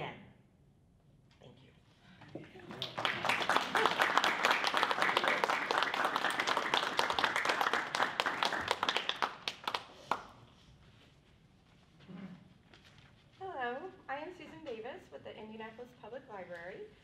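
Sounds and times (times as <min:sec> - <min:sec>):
audience applauding: 0:02.6 - 0:10.3.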